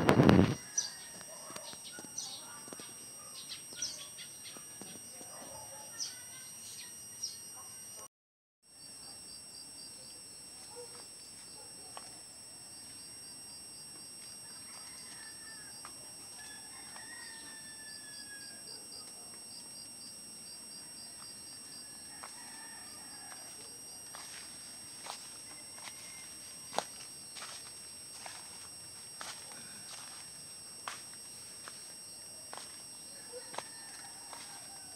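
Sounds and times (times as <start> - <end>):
insect drone: 0.0 - 8.1, 8.7 - 34.9
rapid insect chirping: 0.0 - 8.1, 8.7 - 34.9
faint rooster crowing: 0.2 - 6.2, 14.4 - 19.3, 20.7 - 30.9, 32.4 - 34.9
light footsteps: 33.4 - 34.8.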